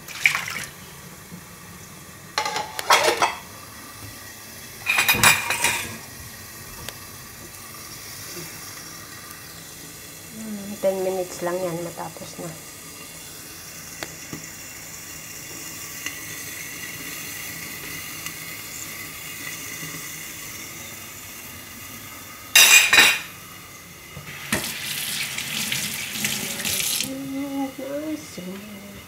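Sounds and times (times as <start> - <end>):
tap running into metal sink: 24.2 - 24.8.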